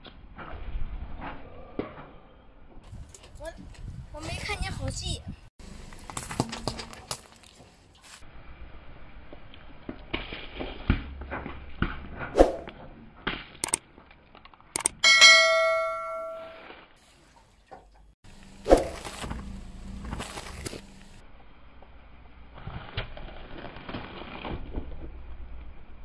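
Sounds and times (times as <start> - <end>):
tyre crushing lemons: 6.0 - 7.6
bell-like chime: 15.0 - 16.6.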